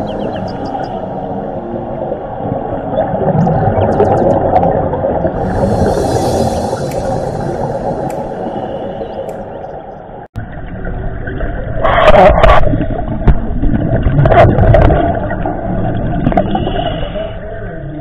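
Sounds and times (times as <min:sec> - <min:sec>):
low underwater rumble: 0:00.0 - 0:16.8
hissing bubbling surges: 0:00.9 - 0:10.2.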